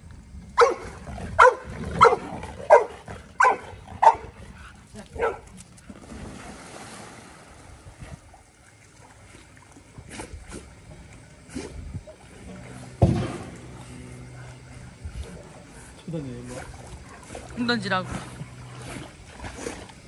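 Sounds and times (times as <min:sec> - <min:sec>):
dog barking: 0:00.6 - 0:04.4, 0:05.2 - 0:05.5.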